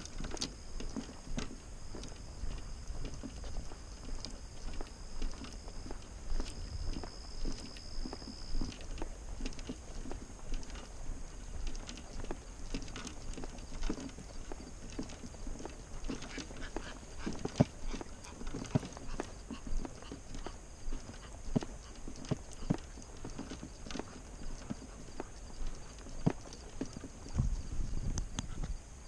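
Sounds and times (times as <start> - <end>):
wind rumble on microphone: 0.0 - 15.0, 26.5 - 29.0
footsteps and knocks: 0.0 - 28.8.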